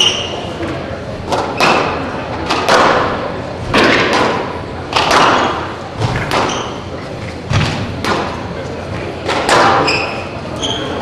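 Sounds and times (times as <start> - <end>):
squash ball echoing cracks: 1.3 - 6.9, 7.5 - 8.5.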